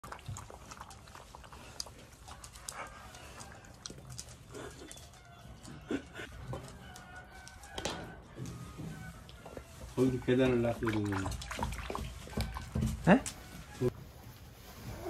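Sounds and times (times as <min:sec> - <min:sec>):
puppies lapping from metal bowl: 0:00.0 - 0:05.2, 0:09.9 - 0:13.1.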